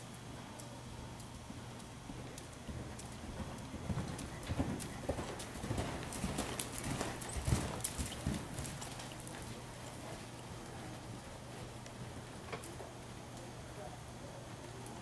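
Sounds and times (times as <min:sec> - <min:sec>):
steady low hum: 0:00.0 - 0:15.0
horse hoofbeats on sand: 0:02.1 - 0:12.4.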